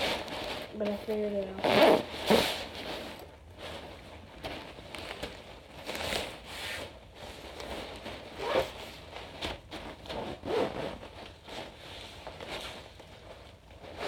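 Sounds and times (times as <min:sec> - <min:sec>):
nylon bag rustling: 0:00.0 - 0:14.0
zipper: 0:01.6 - 0:03.1, 0:08.3 - 0:08.9, 0:10.1 - 0:11.1.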